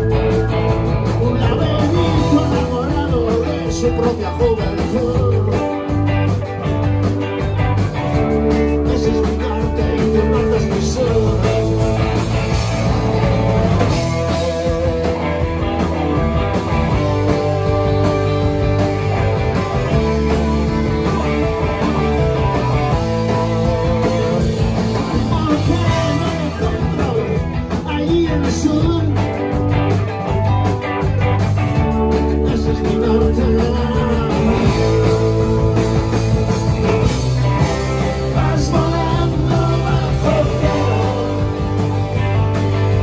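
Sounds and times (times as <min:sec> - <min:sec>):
drums: 0:00.0 - 0:43.0
electric bass: 0:00.0 - 0:43.0
electric guitars: 0:00.0 - 0:43.0
keyboard: 0:00.0 - 0:43.0
person singing: 0:01.0 - 0:06.1, 0:08.6 - 0:12.0, 0:14.0 - 0:15.6, 0:22.4 - 0:29.5, 0:32.2 - 0:35.8, 0:38.0 - 0:41.8.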